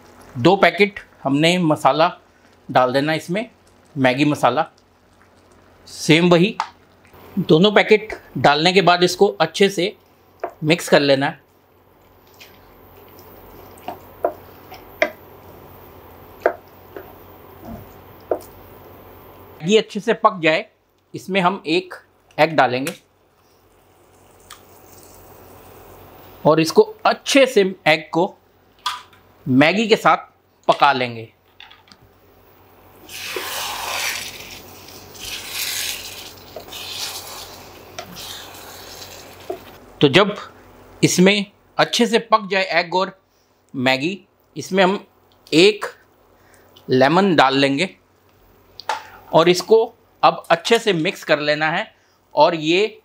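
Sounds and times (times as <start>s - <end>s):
wet noodles squelching: 33.0s - 39.8s.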